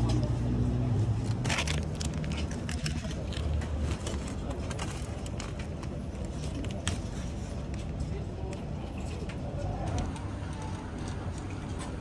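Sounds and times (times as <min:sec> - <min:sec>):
aluminium foil crinkling: 0:01.2 - 0:07.5.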